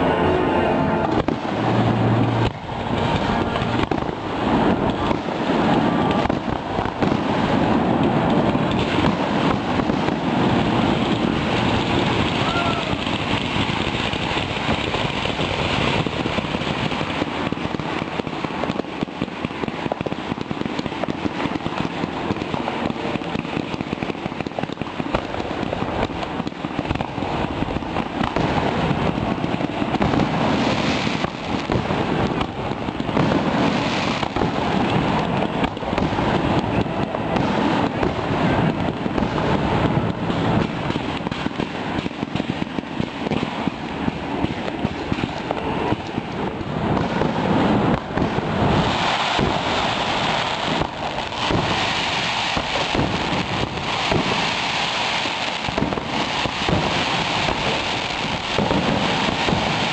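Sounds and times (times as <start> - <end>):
fireworks crackling and popping: 0.0 - 59.9.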